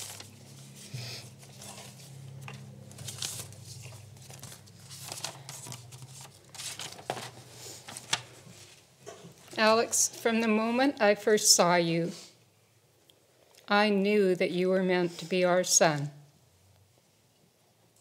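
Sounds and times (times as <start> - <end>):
paper rustling and crinkling: 0.0 - 9.7.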